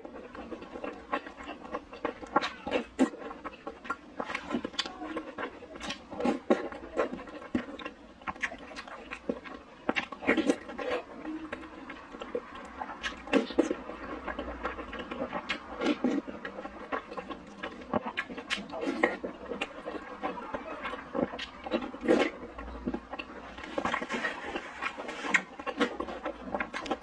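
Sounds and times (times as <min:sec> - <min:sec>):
person slurping and chewing: 0:00.0 - 0:27.0.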